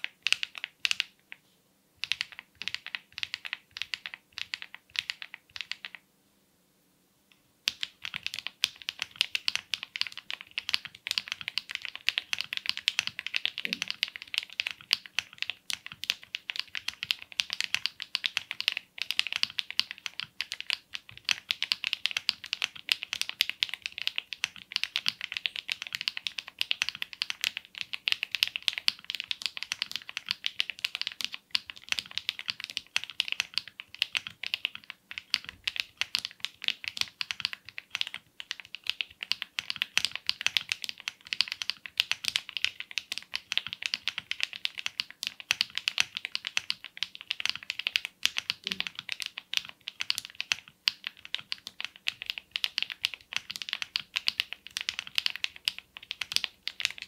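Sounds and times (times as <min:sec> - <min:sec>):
mechanical keyboard typing: 0:00.0 - 0:01.2, 0:02.0 - 0:06.0, 0:07.6 - 0:57.0.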